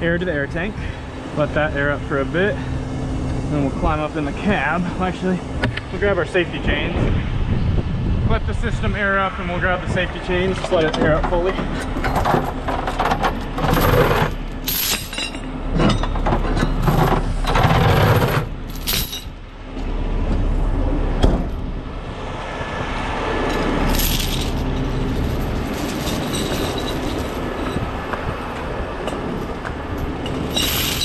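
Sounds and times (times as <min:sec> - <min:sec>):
steel chains clanking and rattling: 0:10.5 - 0:19.4, 0:23.4 - 0:28.2, 0:30.0 - 0:31.0
chains dropped onto pavement: 0:11.8 - 0:19.4, 0:23.5 - 0:28.1, 0:30.0 - 0:31.0.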